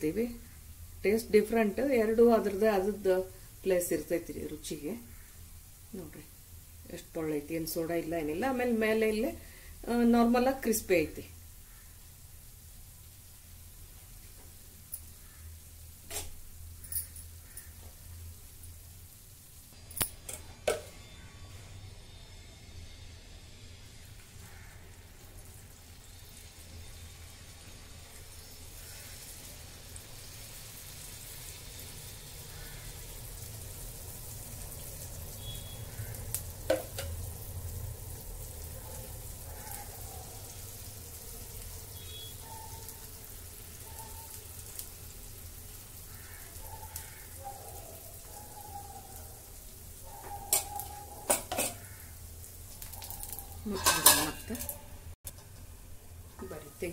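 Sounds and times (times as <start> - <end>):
batter sizzling in oil: 0.0 - 56.9
spoon clinking on metal: 53.3 - 54.8.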